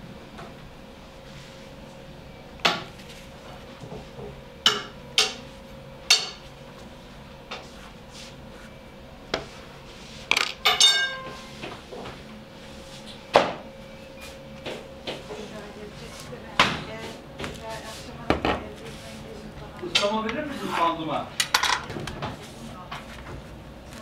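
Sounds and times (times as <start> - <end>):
faint hum: 0.0 - 24.0
metal pans clattering: 10.3 - 11.4, 21.4 - 22.0
metal piece ringing: 10.3 - 11.5.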